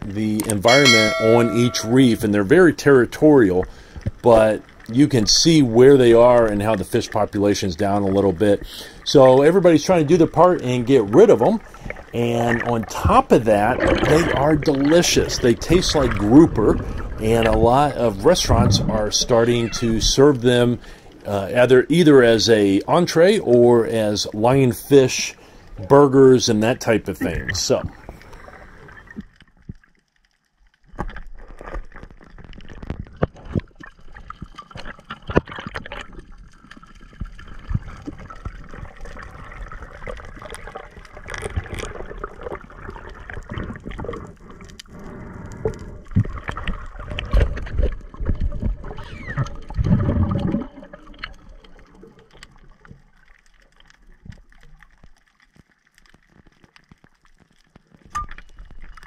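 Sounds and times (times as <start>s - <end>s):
water rushing and gurgling underwater: 0.0s - 59.0s.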